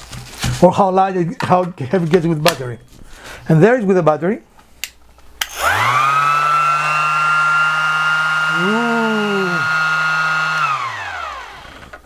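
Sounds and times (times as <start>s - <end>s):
sander motor whining: 5.4s - 12.0s.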